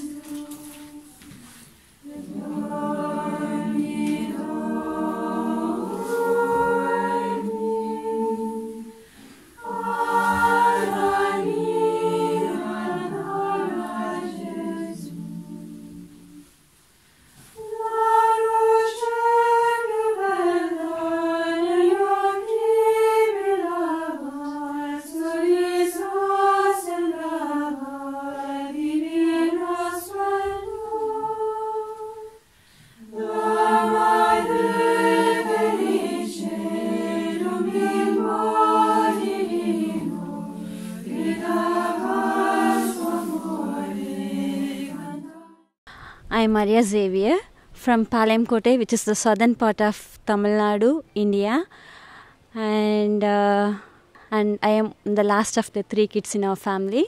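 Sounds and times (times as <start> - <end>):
women's choir singing a cappella: 0.0 - 16.6, 17.5 - 45.8.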